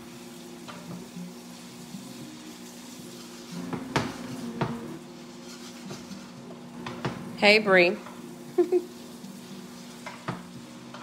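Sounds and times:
vegetables sizzling in a skillet: 0:00.0 - 0:11.0
wooden spatula stirring: 0:05.1 - 0:07.1.

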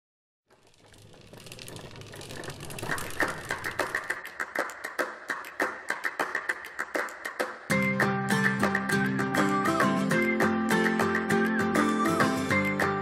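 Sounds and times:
rhythmic clicking beat: 0:03.2 - 0:13.0.

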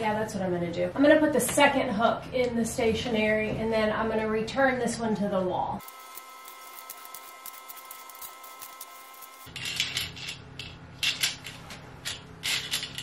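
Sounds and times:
low hum: 0:05.8 - 0:11.4.

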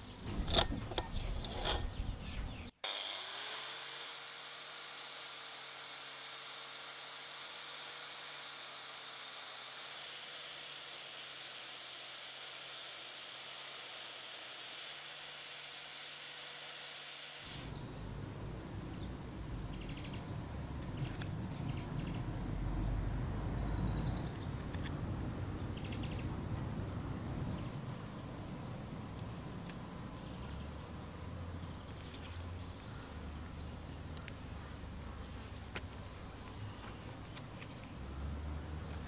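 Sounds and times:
outdoor ambience: 0:00.0 - 0:39.0
sanding disc whining: 0:00.3 - 0:17.8.

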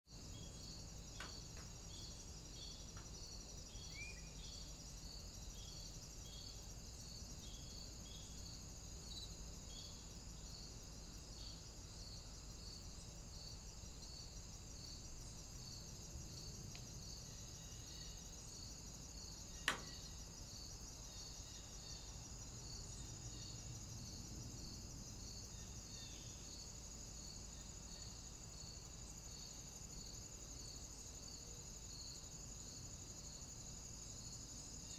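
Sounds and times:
faint high hiss: 0:00.1 - 0:24.0
sharp click: 0:19.6 - 0:20.0.

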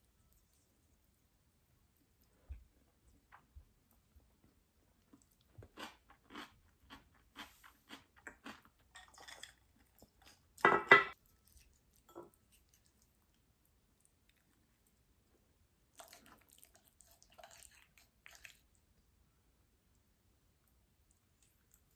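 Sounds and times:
pickle crunching when chewed: 0:05.0 - 0:10.6.

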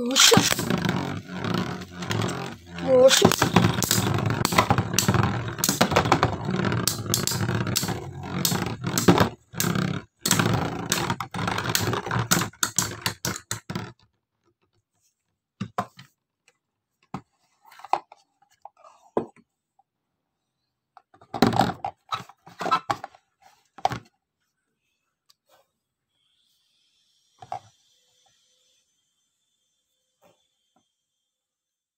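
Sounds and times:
sharp clicks of tops clashing: 0:00.0 - 0:13.5
spinning tops whirring and scraping: 0:00.0 - 0:13.9.

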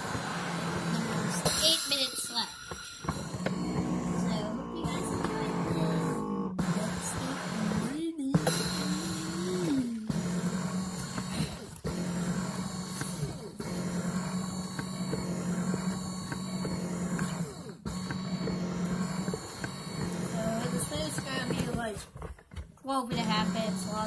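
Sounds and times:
massager motor humming: 0:00.0 - 0:24.0.

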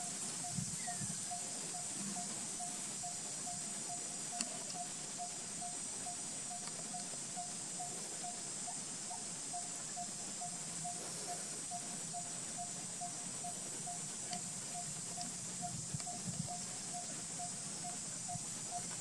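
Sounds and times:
high-pitched hiss: 0:00.0 - 0:19.0.

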